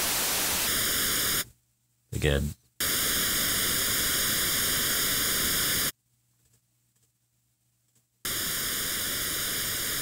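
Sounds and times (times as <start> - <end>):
comb-filtered hiss: 0.0 - 10.0.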